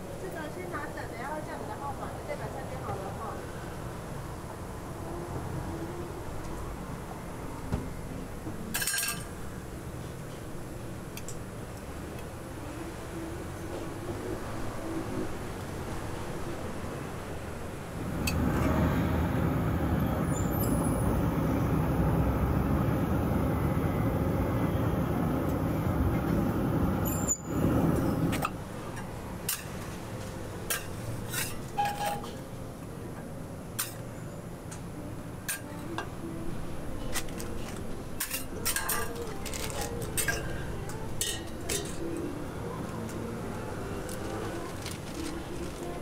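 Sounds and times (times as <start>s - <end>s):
loud rushing noise: 17.9s - 28.7s.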